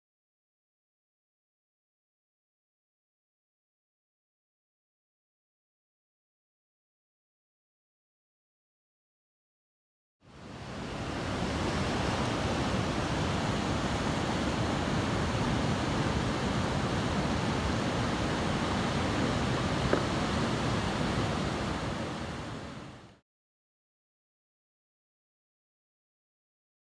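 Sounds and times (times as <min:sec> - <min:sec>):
ocean waves breaking on beach: 0:10.3 - 0:23.2.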